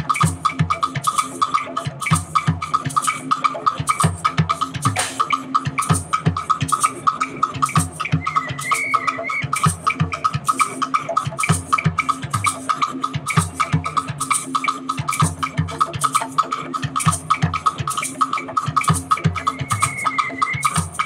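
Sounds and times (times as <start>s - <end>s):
rapid high-pitched clicks: 0.0s - 21.0s
samba drums playing: 0.0s - 21.0s
held high wavering tone: 8.2s - 9.6s, 19.5s - 20.8s.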